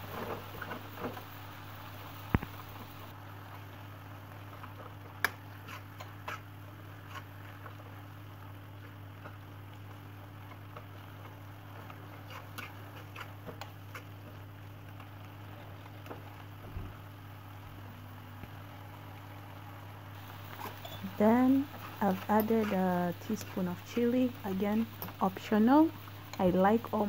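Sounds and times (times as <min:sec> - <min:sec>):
steady low hum: 0:00.0 - 0:03.6, 0:15.2 - 0:27.0
fork mashing food in pan: 0:05.2 - 0:07.8, 0:10.5 - 0:14.3.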